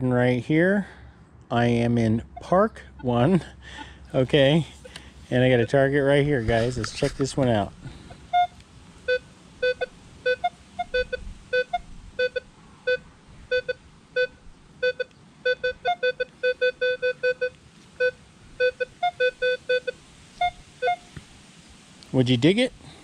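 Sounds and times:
metal detector beeps: 0:08.2 - 0:21.2.

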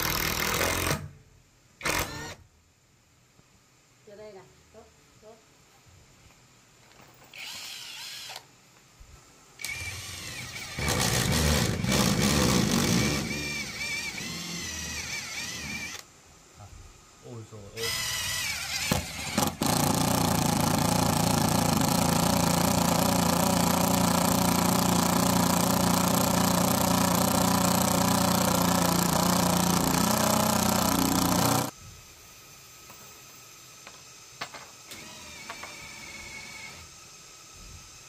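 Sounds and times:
power tool motor running: 0:01.8 - 0:02.4, 0:07.4 - 0:08.5, 0:09.6 - 0:16.0, 0:17.8 - 0:31.8.

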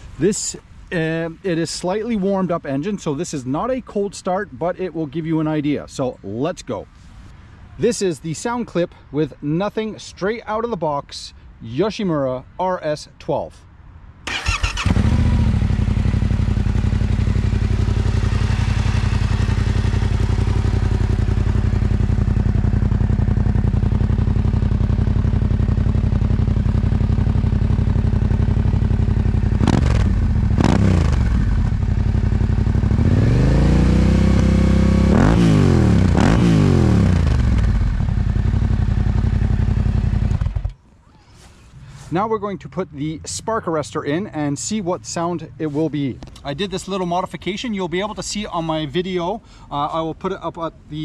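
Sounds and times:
motorcycle engine idling and revving: 0:14.3 - 0:40.8.

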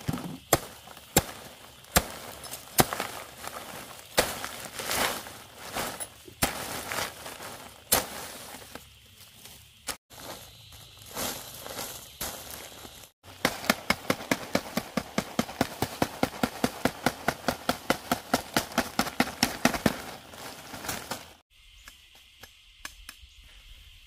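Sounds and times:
high insect buzz: 0:00.0 - 0:24.0
stick beating on plastic sheet: 0:13.3 - 0:20.2.

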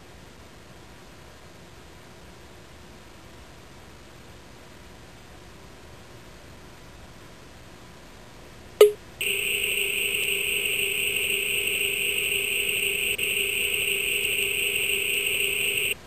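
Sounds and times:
steady electronic tone: 0:08.8 - 0:16.0.

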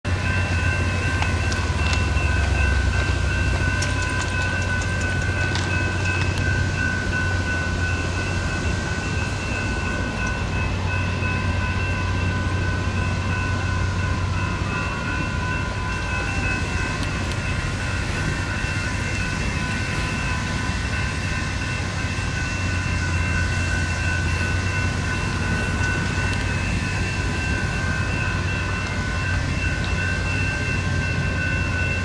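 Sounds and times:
railroad crossing bells ringing: 0:00.0 - 0:32.0.

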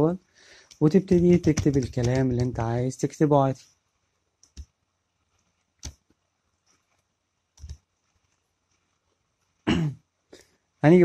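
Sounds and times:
computer mouse clicks: 0:04.4 - 0:08.9.

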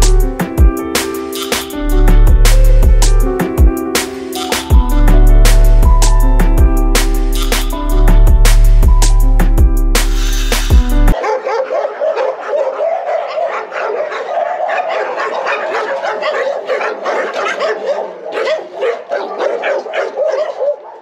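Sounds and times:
dogs barking: 0:11.1 - 0:21.0.

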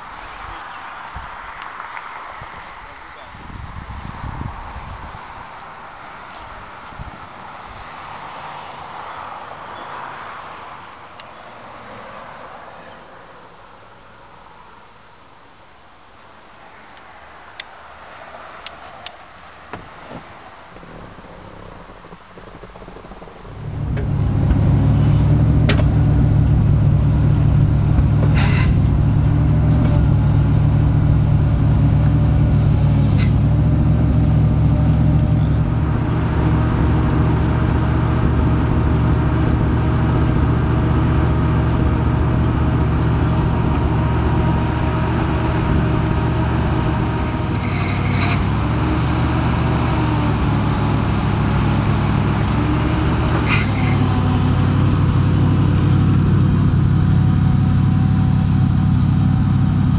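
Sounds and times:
car engine idling: 0:20.4 - 0:59.9
sharp clicks and clanks: 0:20.8 - 0:24.7.

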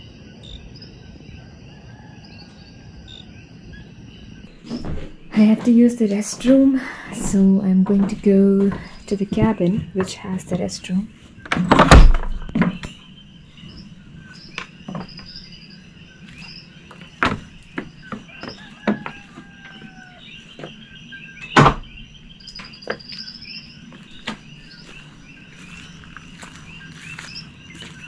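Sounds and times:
frogs chorus: 0:00.0 - 0:28.0
insects chirping: 0:00.0 - 0:28.0
knocks and footsteps: 0:04.5 - 0:28.0
door thudding: 0:11.5 - 0:12.9, 0:21.5 - 0:22.0.

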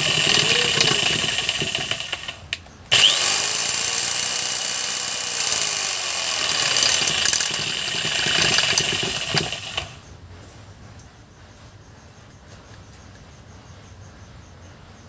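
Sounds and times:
electric drill running: 0:00.0 - 0:10.0.

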